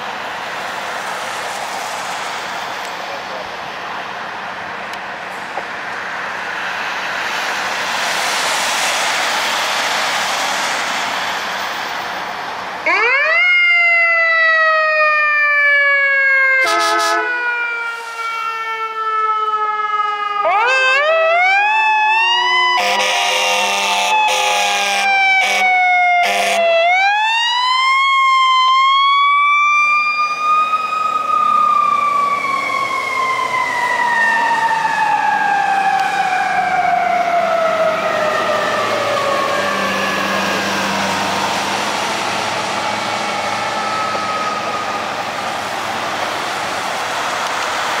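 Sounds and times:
fire engine siren wailing: 0.0s - 48.0s
horn blasts: 16.6s - 17.4s, 22.8s - 26.7s.

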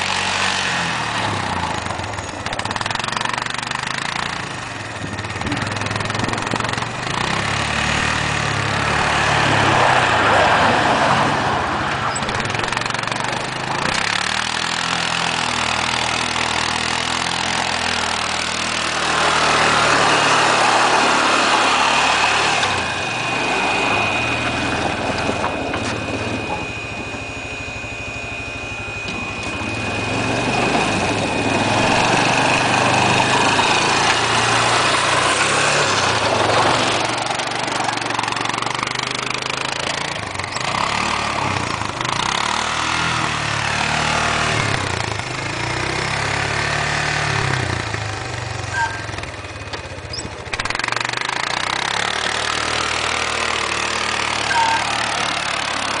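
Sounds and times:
atv engine revving: 0.0s - 56.0s
thin high whine: 18.8s - 36.3s, 52.9s - 56.0s.

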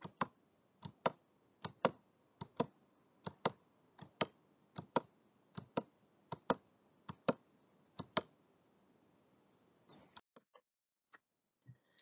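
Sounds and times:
computer mouse clicks: 0.0s - 7.4s, 8.0s - 8.4s.

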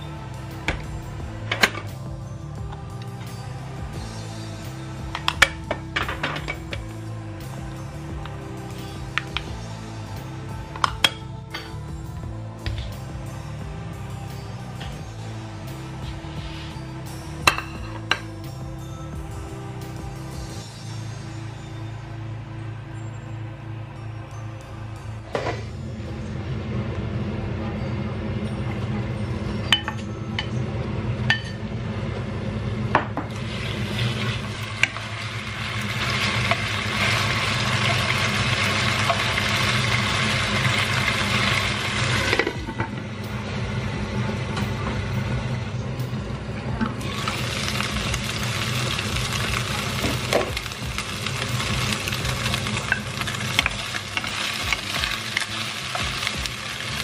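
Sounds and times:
chicken sizzling in oil: 33.3s - 42.6s, 47.0s - 57.0s.

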